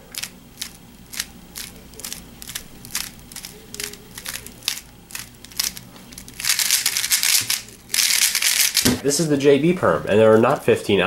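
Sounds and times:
puzzle cube plastic clicks: 0:00.1 - 0:08.8.

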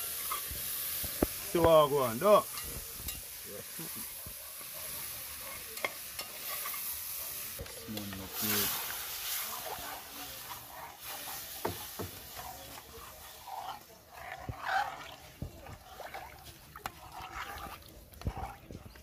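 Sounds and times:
spoon clinking against pot: 0:02.5 - 0:03.3, 0:05.6 - 0:06.8
spoon stirring stew in pot: 0:04.1 - 0:19.0.

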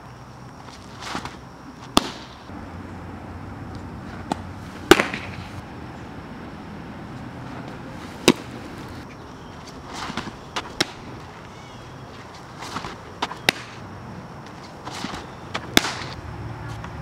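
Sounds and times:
ball smacking into leather mitt: 0:01.0 - 0:02.4, 0:04.2 - 0:05.4, 0:08.2 - 0:08.5, 0:09.6 - 0:11.1, 0:12.6 - 0:13.8, 0:14.4 - 0:16.2.

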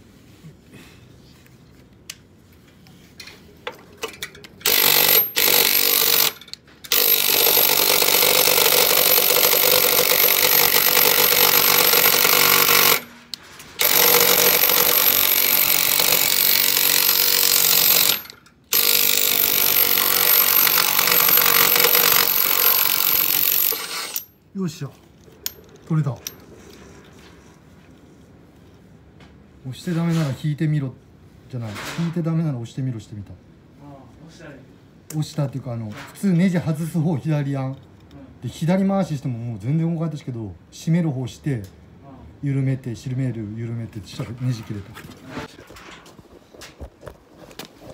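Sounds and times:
impact driver hammering: 0:04.6 - 0:13.2, 0:13.8 - 0:24.3.

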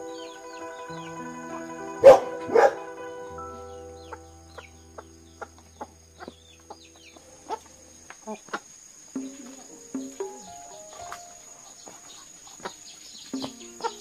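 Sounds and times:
high chirps: 0:00.0 - 0:14.0
chickens clucking: 0:04.0 - 0:14.0.

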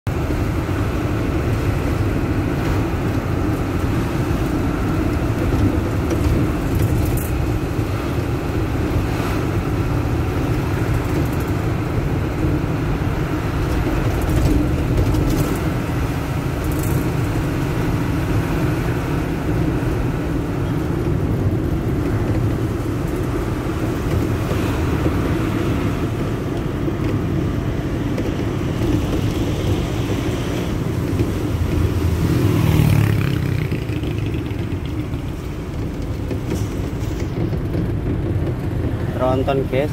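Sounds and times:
road noise: 0:00.0 - 0:39.9
truck diesel engine running: 0:00.1 - 0:39.9.

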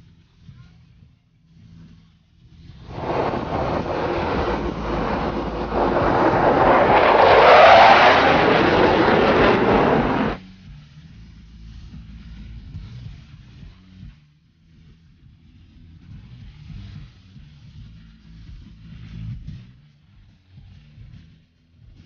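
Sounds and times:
jet flying past: 0:02.8 - 0:10.4.

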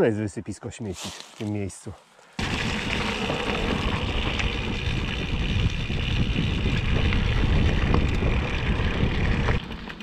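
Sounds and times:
wind buffeting microphone: 0:02.4 - 0:09.8
bike rattling: 0:02.4 - 0:10.0.

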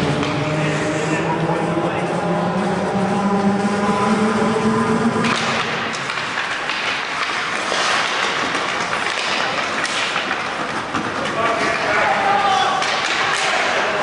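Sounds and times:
sticks and puck clacking: 0:00.0 - 0:01.2, 0:05.2 - 0:14.0
skates scraping on ice: 0:05.3 - 0:14.0.

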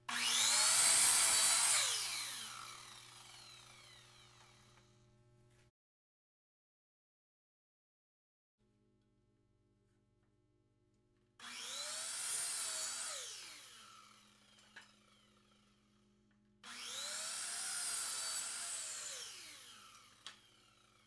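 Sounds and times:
mitre saw cutting: 0:00.1 - 0:04.8, 0:11.4 - 0:15.9, 0:16.6 - 0:21.0.

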